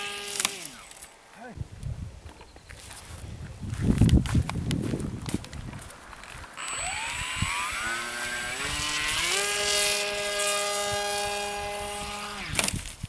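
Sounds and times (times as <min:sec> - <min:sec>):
model aircraft motor whining: 0:00.0 - 0:01.1, 0:06.6 - 0:13.0.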